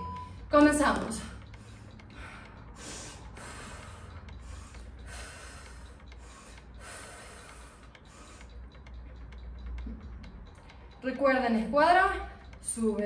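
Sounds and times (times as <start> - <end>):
low steady hum: 0.0 - 13.0
woman breathing hard: 1.5 - 8.7.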